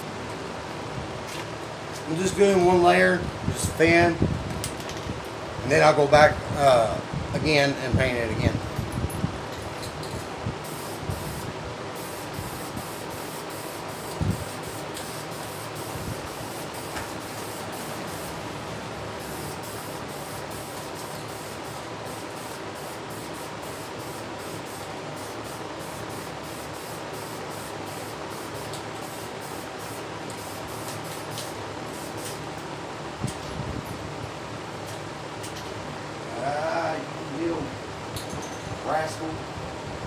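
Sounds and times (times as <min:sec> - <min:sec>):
spray paint can hissing: 0:10.6 - 0:18.4, 0:19.2 - 0:32.4.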